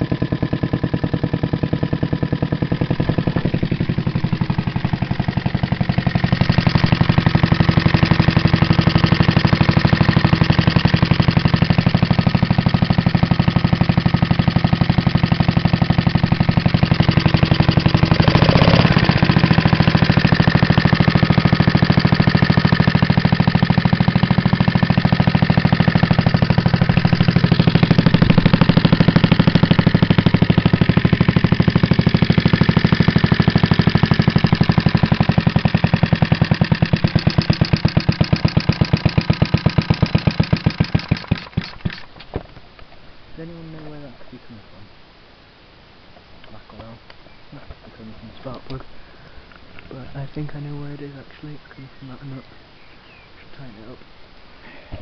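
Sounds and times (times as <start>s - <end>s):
single-cylinder engine running: 0.0s - 42.3s.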